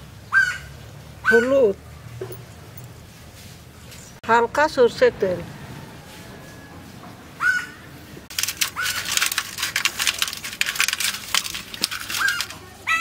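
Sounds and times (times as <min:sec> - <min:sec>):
wet squelches in metal colander: 0:08.3 - 0:13.0.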